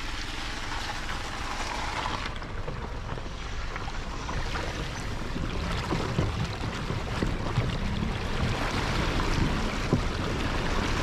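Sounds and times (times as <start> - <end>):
car tyres rolling over stones: 0.0 - 11.0
road noise rumble: 0.0 - 11.0
water sloshing around wheel: 0.0 - 11.0.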